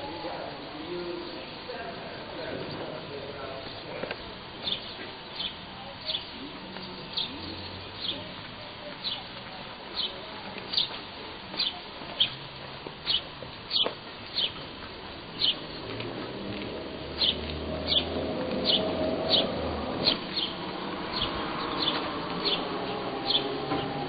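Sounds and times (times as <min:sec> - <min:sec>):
small bird chirping: 0:04.2 - 0:08.3, 0:10.0 - 0:11.0, 0:13.0 - 0:14.6, 0:15.3 - 0:15.9, 0:17.2 - 0:23.6.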